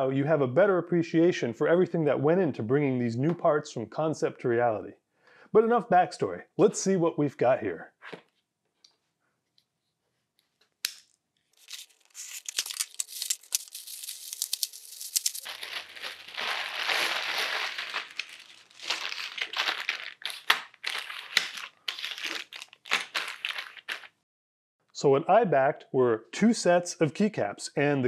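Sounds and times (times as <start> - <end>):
cardboard box tearing: 11.6 - 23.6
plastic bag crinkling: 11.6 - 24.2
small plastic bags rustling: 11.6 - 24.2.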